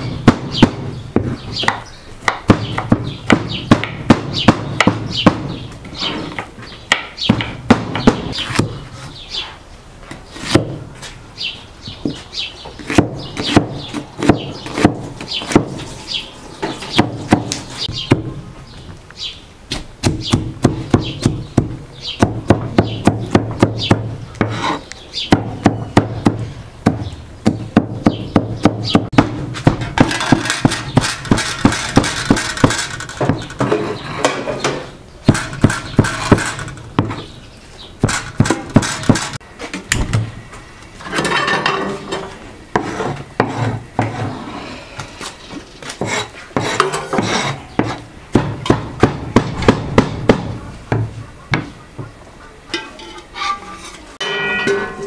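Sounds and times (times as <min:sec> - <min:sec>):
cleaver chopping on wooden board: 0:00.2 - 0:05.6, 0:12.8 - 0:15.8, 0:19.7 - 0:33.4, 0:46.0 - 0:51.7
rasping scrape: 0:24.4 - 0:24.9, 0:42.8 - 0:45.0, 0:46.0 - 0:48.0, 0:53.0 - 0:54.2.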